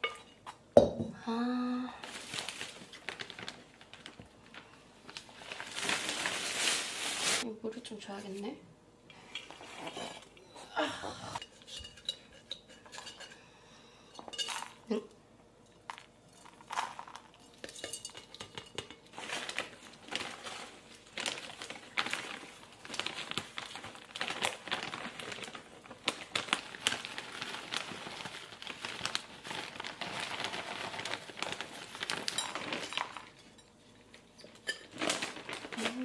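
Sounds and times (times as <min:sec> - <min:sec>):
plastic bag crinkling: 0:02.0 - 0:07.5, 0:19.1 - 0:33.5, 0:34.1 - 0:36.0
pot and saucer clinking: 0:14.1 - 0:14.8, 0:17.4 - 0:19.0
soil pattering into pot: 0:15.8 - 0:33.4.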